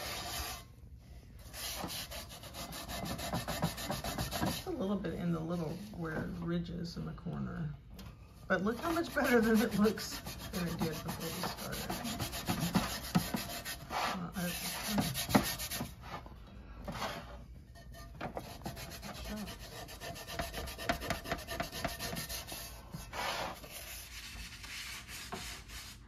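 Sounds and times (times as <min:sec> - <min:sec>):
scouring pad scrubbing skillet: 0:00.0 - 0:00.6, 0:08.5 - 0:16.0.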